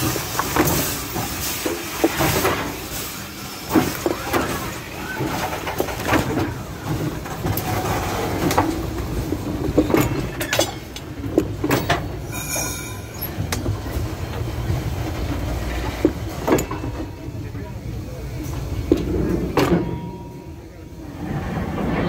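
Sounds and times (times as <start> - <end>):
train wheels rumbling on rail: 0.0 - 22.0
clicks and clanks: 5.2 - 13.8
high wheel squeal: 12.2 - 13.6.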